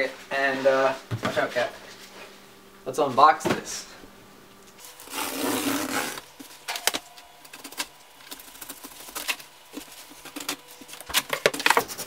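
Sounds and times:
cutter slitting packing tape: 5.0s - 6.2s.

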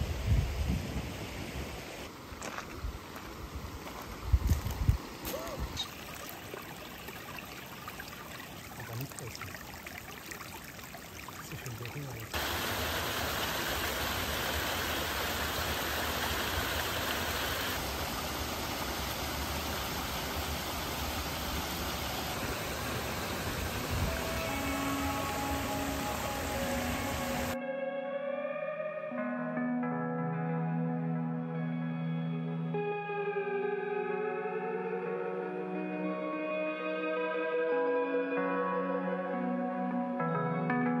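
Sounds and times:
stream running over rocks: 1.3s - 27.6s.

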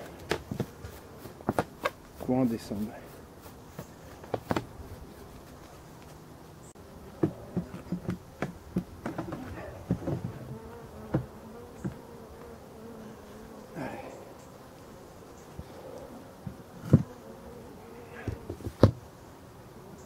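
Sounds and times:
honeybees buzzing: 0.0s - 20.0s.

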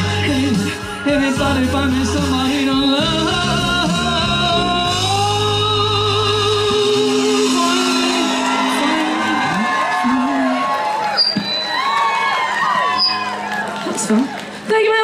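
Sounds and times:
low bass: 0.0s - 10.3s
backing track: 0.0s - 15.0s.

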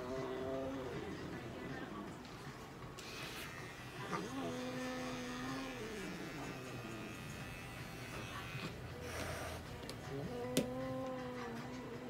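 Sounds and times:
pet clipper buzzing: 3.0s - 11.0s.

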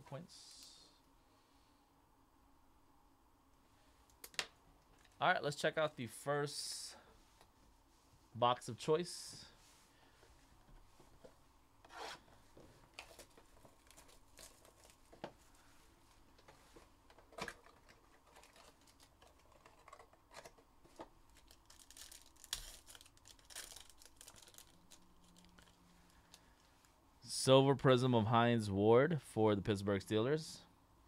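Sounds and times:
wrapper tearing and crinkling: 13.0s - 15.0s, 17.4s - 20.5s, 21.3s - 25.8s.

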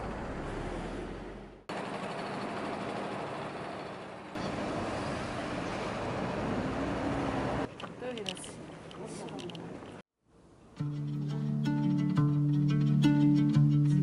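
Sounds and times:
road traffic roar: 0.0s - 10.6s.

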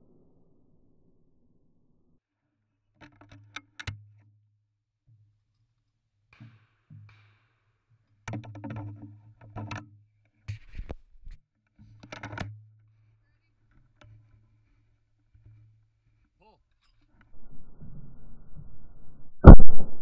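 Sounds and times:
shotgun handling clicks and knocks: 8.3s - 9.9s, 11.9s - 12.7s
faint low hum: 17.2s - 20.0s.

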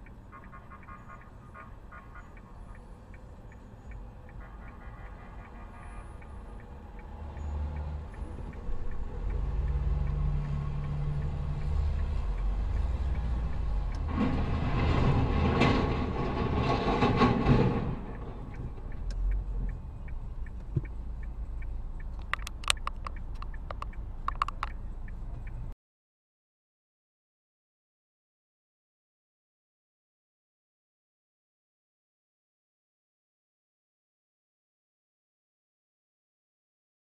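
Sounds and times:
car engine rumbling: 0.0s - 25.8s
heavy vehicle crash: 14.0s - 18.6s
sharp clicks: 18.5s - 25.6s.

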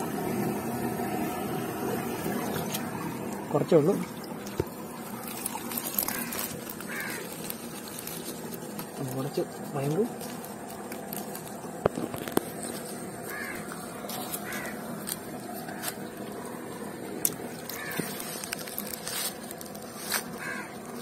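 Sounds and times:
crow cawing: 5.9s - 7.4s, 13.2s - 14.9s, 17.7s - 18.2s, 20.4s - 20.8s.

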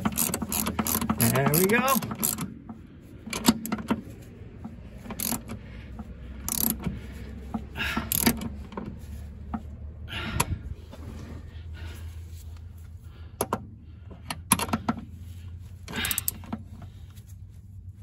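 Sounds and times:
ratchet wrench clicking: 0.0s - 2.7s, 5.0s - 5.6s, 6.4s - 7.0s, 7.8s - 8.5s, 15.9s - 16.6s.

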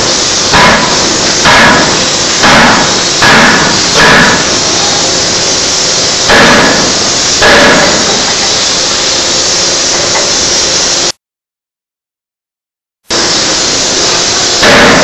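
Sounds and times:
forging hammer striking steel: 0.0s - 9.0s, 9.8s - 10.6s, 13.1s - 15.0s
steady loud noise: 0.0s - 11.2s, 13.1s - 15.0s.

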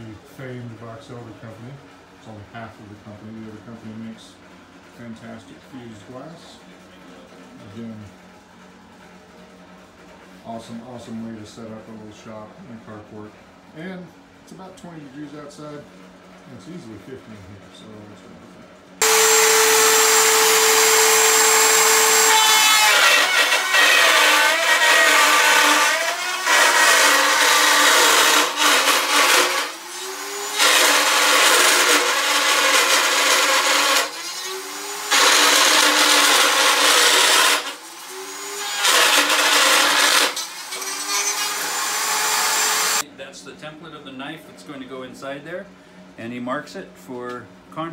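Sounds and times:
router bit cutting wood: 19.0s - 43.0s
router running: 19.0s - 43.0s.

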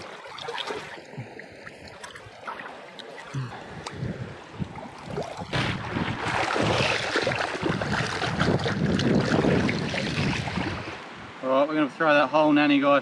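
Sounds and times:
shallow water sloshing around feet: 0.0s - 11.0s
wind on microphone: 3.4s - 11.4s.

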